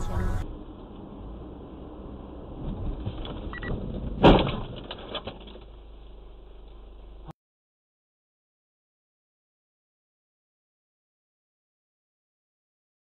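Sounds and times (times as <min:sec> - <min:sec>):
car collision bang: 0:03.8 - 0:04.8.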